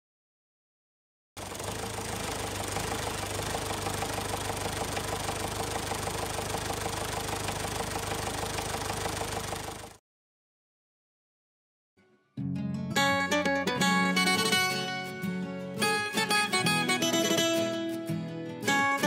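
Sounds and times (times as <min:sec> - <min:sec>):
jeep engine chugging: 0:01.4 - 0:10.0.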